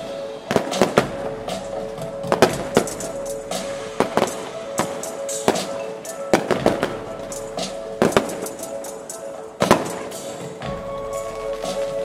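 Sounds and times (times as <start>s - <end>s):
music playing: 0.0s - 12.0s
fireworks bangs: 3.5s - 8.8s.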